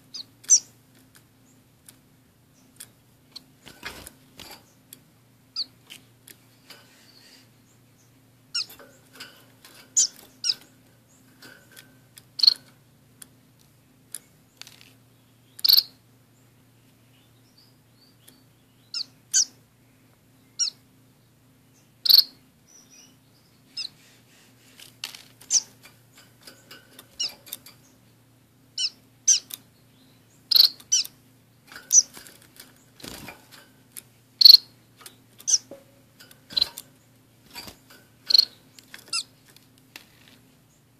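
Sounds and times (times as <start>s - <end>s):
finches chirping: 0.0s - 0.8s, 5.5s - 9.1s, 9.9s - 11.4s, 12.3s - 12.7s, 14.5s - 16.5s, 17.1s - 19.6s, 20.4s - 20.9s, 21.7s - 24.1s, 25.4s - 33.3s, 34.4s - 39.4s.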